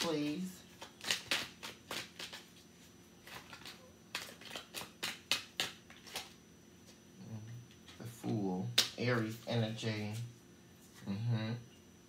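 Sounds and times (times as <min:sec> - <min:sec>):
cards being shuffled: 0:00.0 - 0:06.3.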